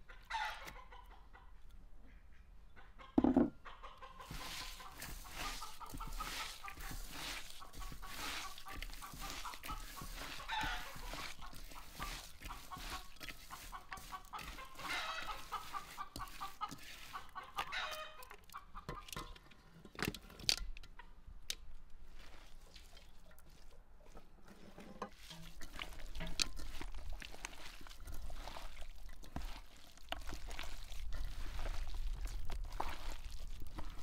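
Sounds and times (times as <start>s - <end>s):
chickens clucking: 0.0s - 19.6s
hands kneading onion in a bowl: 4.2s - 19.3s, 22.0s - 34.0s.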